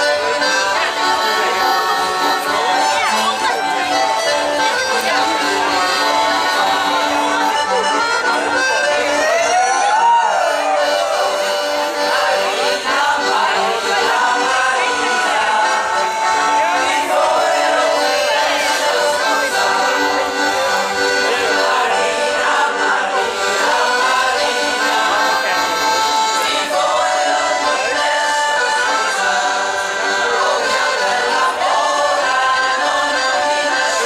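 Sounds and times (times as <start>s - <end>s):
accordion: 0.0s - 34.0s
choir singing in unison: 12.0s - 25.8s, 26.4s - 34.0s.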